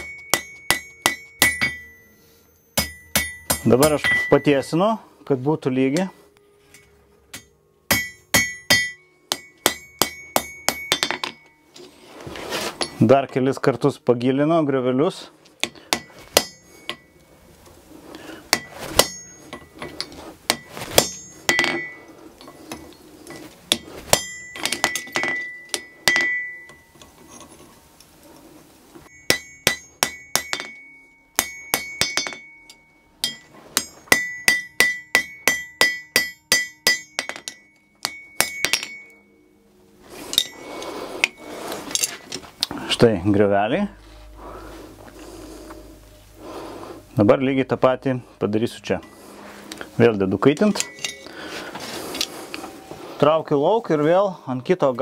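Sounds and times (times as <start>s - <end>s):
hammer ringing on anvil: 0.0s - 4.8s, 7.3s - 11.6s, 15.6s - 17.2s, 18.5s - 19.9s, 20.5s - 22.6s, 23.7s - 27.1s, 29.0s - 39.4s, 40.3s - 42.1s, 50.6s - 51.3s.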